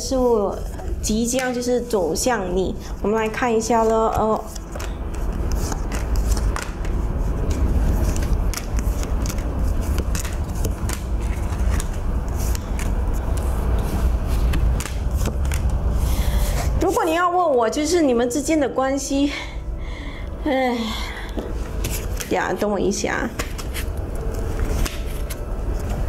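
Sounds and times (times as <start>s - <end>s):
cards being shuffled: 3.6s - 17.0s, 21.7s - 22.5s, 23.2s - 26.0s.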